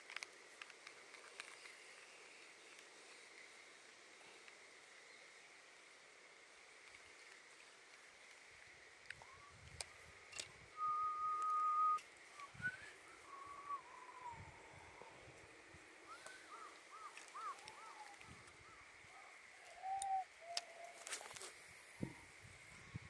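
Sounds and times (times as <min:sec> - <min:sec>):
bird whistling song: 0:10.8 - 0:15.1, 0:16.1 - 0:21.3.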